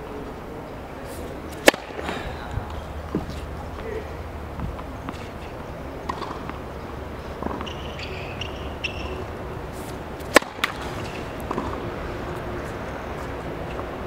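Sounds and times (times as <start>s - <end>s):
racket striking ball: 1.1s - 2.4s, 4.6s - 12.8s
ball bouncing on hard court: 1.6s - 2.0s, 6.1s - 6.6s, 7.4s - 9.2s, 10.2s - 11.8s.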